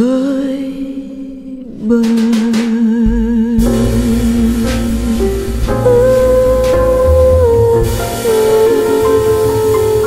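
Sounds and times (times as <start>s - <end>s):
low bass notes: 3.0s - 10.0s
long held note with vibrato: 3.6s - 10.0s.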